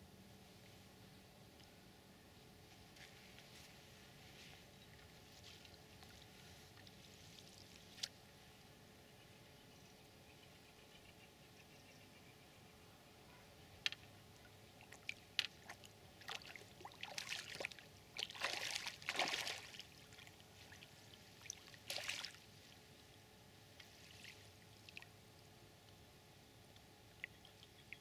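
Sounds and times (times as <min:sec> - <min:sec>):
fish splashing at water surface: 0:14.8 - 0:20.0, 0:21.5 - 0:22.4.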